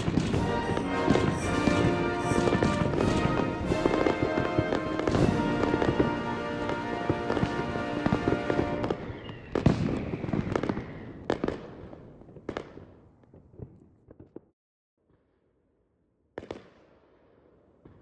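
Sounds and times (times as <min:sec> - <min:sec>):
music: 0:00.0 - 0:09.0
fireworks crackling and booming: 0:00.0 - 0:15.4.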